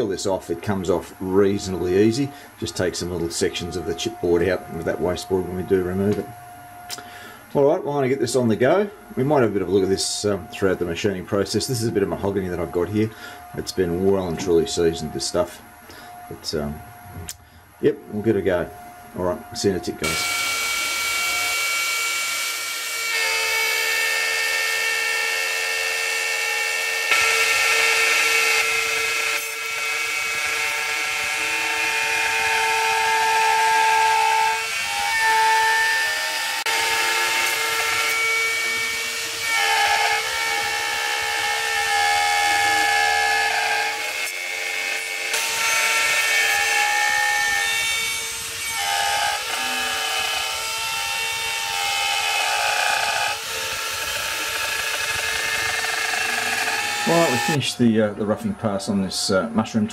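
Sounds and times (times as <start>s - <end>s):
router spindle whine: 0.0s - 59.4s
router cutting wood: 19.6s - 57.6s.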